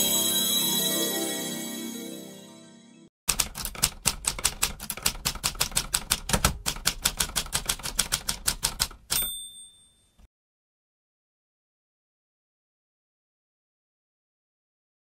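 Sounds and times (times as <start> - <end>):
typewriter key clacks: 3.3 - 9.4
typewriter bell ding: 9.1 - 10.3.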